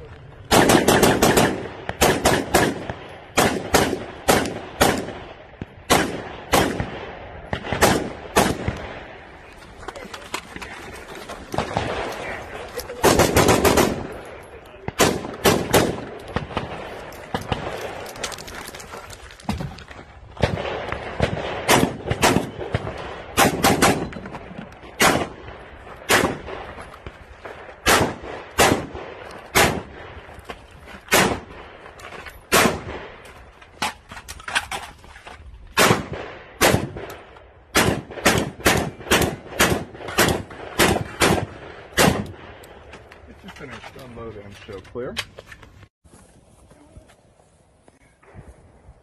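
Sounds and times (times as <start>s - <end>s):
gunshots: 0.5s - 9.4s, 11.4s - 18.5s, 20.4s - 26.8s, 27.4s - 30.3s, 31.1s - 33.2s, 35.7s - 42.6s.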